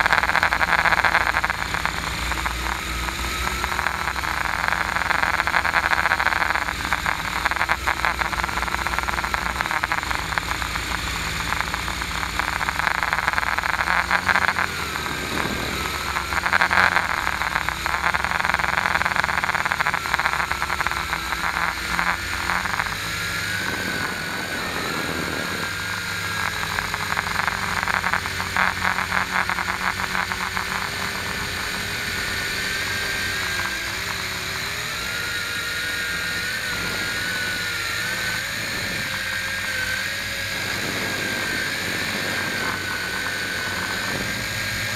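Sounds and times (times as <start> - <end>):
model aircraft motor whine: 0.0 - 44.9
wind rushing over microphone: 23.3 - 25.8, 40.1 - 44.9.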